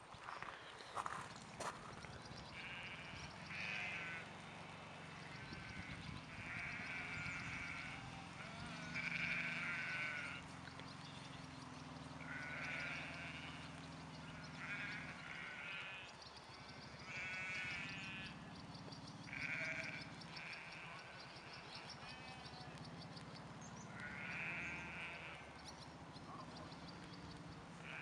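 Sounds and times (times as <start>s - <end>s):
sheep bleating: 2.4s - 10.6s, 12.2s - 18.6s, 19.2s - 22.9s, 23.7s - 25.7s, 27.8s - 28.0s.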